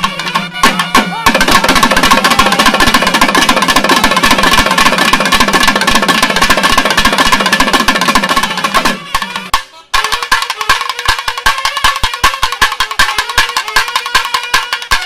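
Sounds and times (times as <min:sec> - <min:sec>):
held wind instrument note: 0:00.0 - 0:02.9, 0:08.4 - 0:15.0
fast drum roll: 0:00.0 - 0:09.5.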